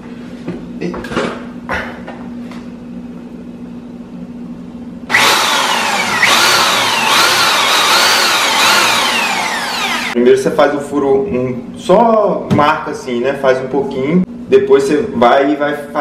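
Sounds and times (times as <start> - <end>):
electric drill whining: 5.1 - 10.2.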